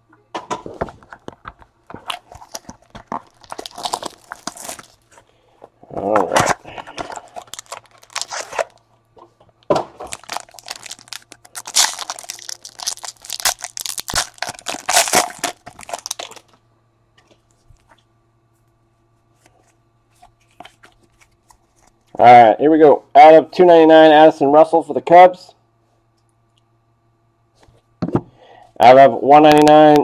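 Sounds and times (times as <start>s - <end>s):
foil wrapper tearing and crinkling: 2.0s - 5.1s, 6.4s - 8.8s, 10.0s - 16.5s.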